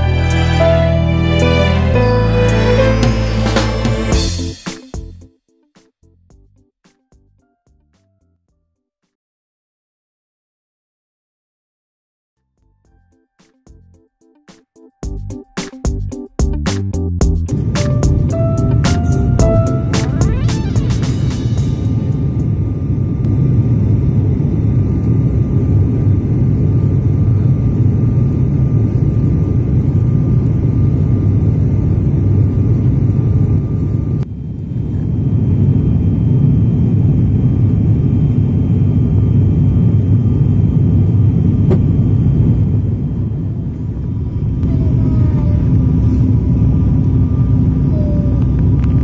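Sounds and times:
airliner cabin rumble: 17.4 - 49.0.

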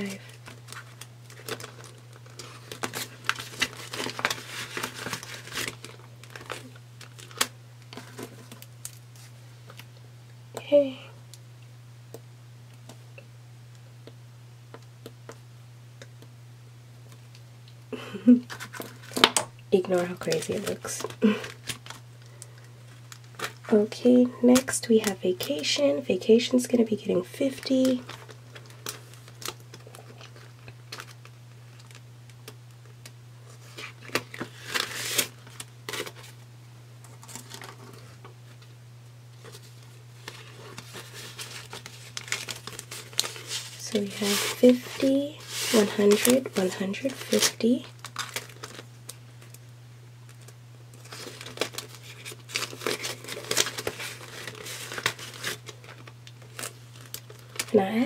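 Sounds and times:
banknotes rustling: 0.0 - 9.3, 39.4 - 48.9, 51.0 - 57.8
plastic pouch crinkling: 0.0 - 9.9, 18.3 - 25.8, 27.3 - 36.4, 37.0 - 38.6, 39.4 - 57.8
steady low hum: 0.0 - 58.0.

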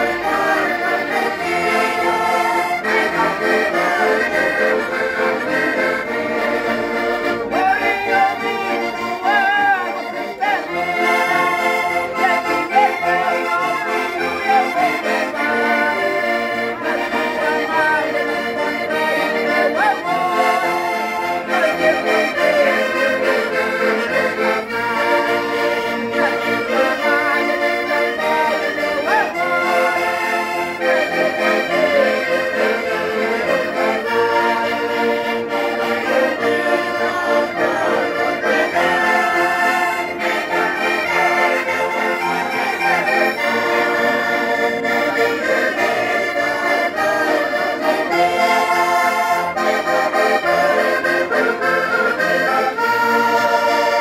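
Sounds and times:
button accordions playing folk tune: 0.0 - 54.0
people singing along: 0.0 - 54.0.

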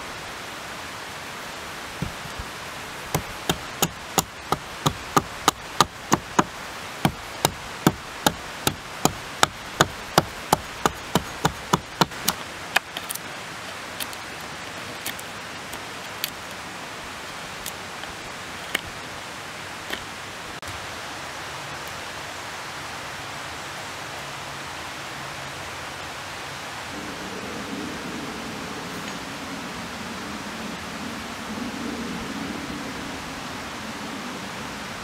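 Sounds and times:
hatchet chopping wooden pole: 2.0 - 2.5, 3.1 - 13.2.

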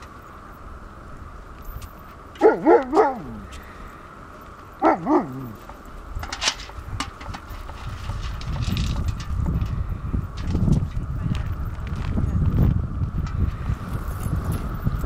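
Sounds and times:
dog yelping barks: 2.4 - 3.5, 4.8 - 5.6.

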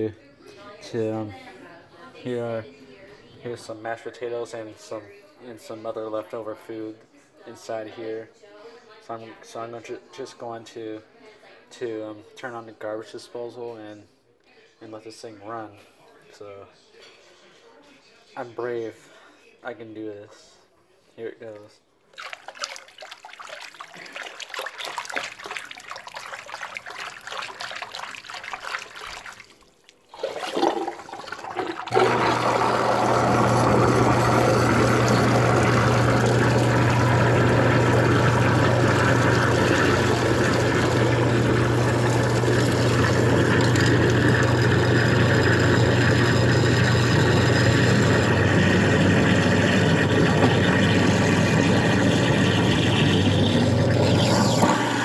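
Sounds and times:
hand sloshing in sink water: 22.1 - 32.0
garbage disposal humming: 22.2 - 55.0
water draining: 22.2 - 55.0.

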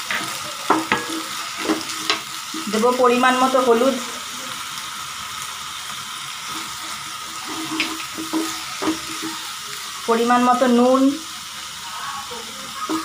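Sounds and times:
wooden spatula scraping wok: 0.0 - 3.8, 6.4 - 9.5
onions sizzling in oil: 0.0 - 13.0.

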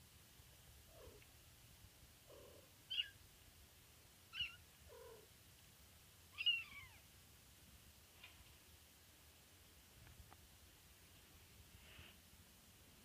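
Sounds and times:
faint low kitten sounds: 0.8 - 1.4, 2.2 - 3.2, 4.3 - 5.4, 6.3 - 7.2
kittens mewing: 6.3 - 7.0.

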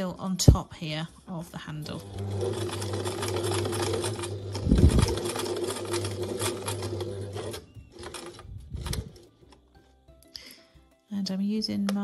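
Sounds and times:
sewing machine stitching: 1.8 - 9.3.

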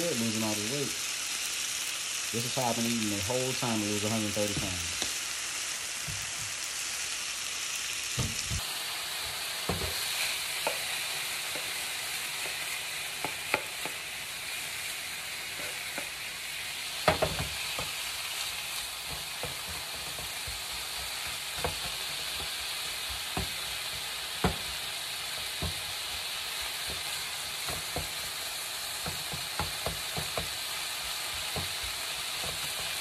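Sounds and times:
chicken sizzling in frying pan: 0.0 - 33.0.

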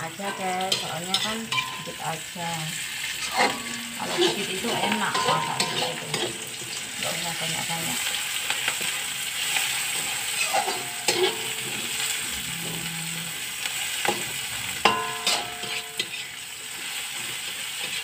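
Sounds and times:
food sizzling in hot oil: 0.0 - 18.0
wok ringing: 0.0 - 18.0
metal spatula scraping and knocking: 3.1 - 6.5, 10.4 - 11.9, 14.9 - 16.3.

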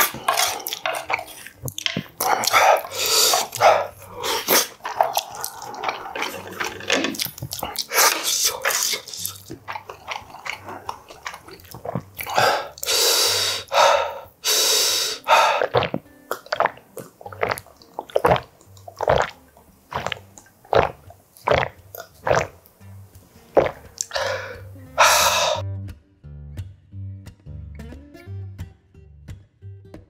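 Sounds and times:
wet chewing and lip smacks: 0.0 - 13.0, 15.3 - 22.8, 23.5 - 25.6
gulping water: 0.0 - 22.7, 23.4 - 25.6
loud breaths: 2.4 - 4.8, 12.3 - 15.8, 24.1 - 25.6.

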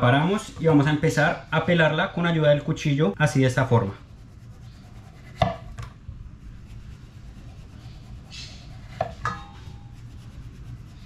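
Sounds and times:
knife scraping through peel: 6.6 - 11.0.

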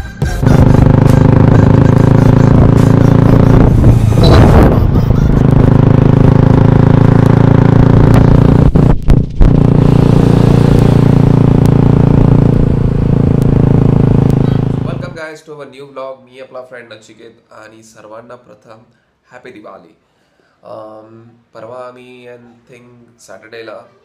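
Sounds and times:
motorcycle engine running: 0.2 - 15.2
short rush of noise: 0.5 - 14.9.

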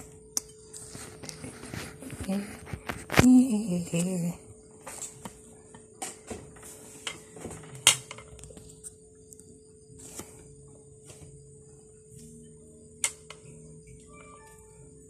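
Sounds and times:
crickets whining: 0.0 - 15.0
faint music: 0.0 - 15.0.

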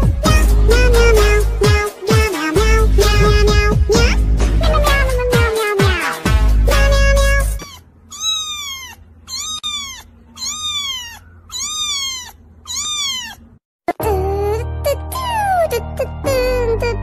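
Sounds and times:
music: 0.0 - 7.6, 14.0 - 17.0
kitten meowing: 7.6 - 13.5.

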